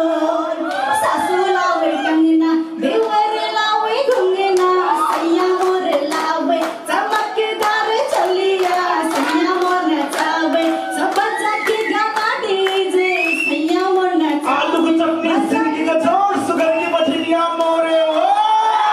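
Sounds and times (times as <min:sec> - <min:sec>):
hands clapping: 0:04.1 - 0:14.6, 0:16.5 - 0:18.5.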